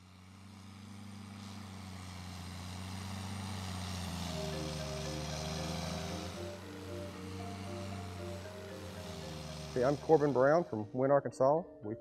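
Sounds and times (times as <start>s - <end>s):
low steady engine drone: 0.0s - 11.0s
short music notes: 4.4s - 12.0s.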